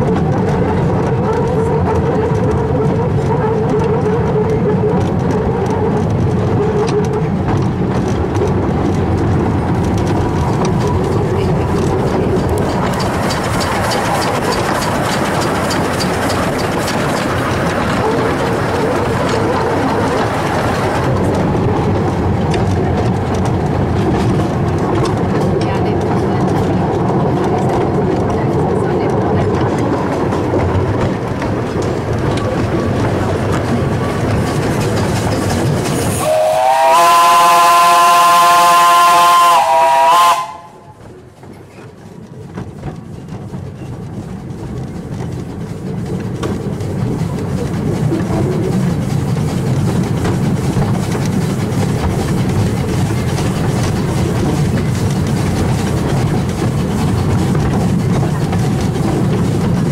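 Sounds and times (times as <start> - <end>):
train rumbling: 0.0 - 59.9
steam whistle blast: 36.2 - 40.8.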